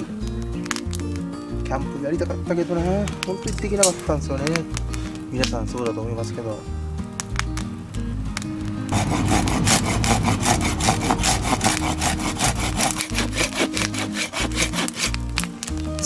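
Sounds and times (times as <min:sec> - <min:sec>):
hand saw sawing through log: 0:08.9 - 0:15.2.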